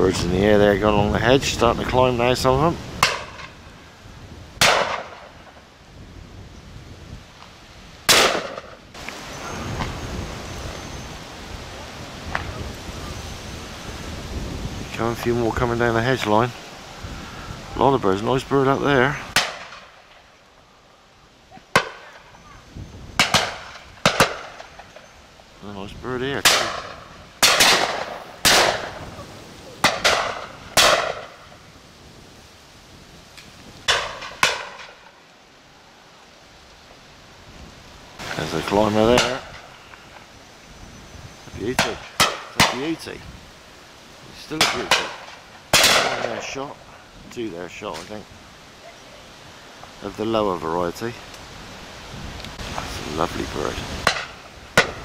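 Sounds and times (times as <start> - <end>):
close shotgun shot: 4.6 - 5.3, 8.1 - 8.7, 23.2 - 24.6, 26.4 - 29.0, 29.8 - 31.3, 41.7 - 43.0, 44.6 - 46.6
distant gunshots: 4.6 - 5.4, 8.1 - 8.7, 23.2 - 24.8, 26.4 - 29.0, 29.8 - 31.4, 44.6 - 46.5.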